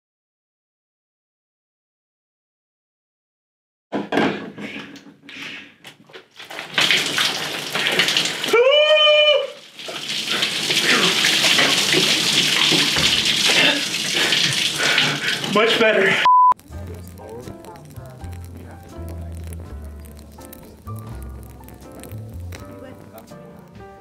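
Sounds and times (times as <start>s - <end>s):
liquid splashing into bathtub: 5.9s - 16.2s
man yelling: 8.5s - 9.6s.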